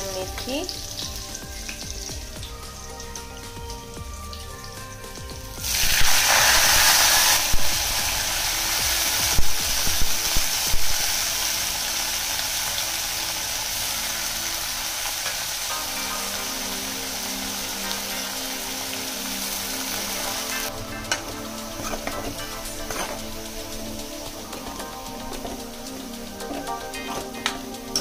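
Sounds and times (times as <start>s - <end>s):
leaves sizzling in hot oil: 0.0s - 28.0s.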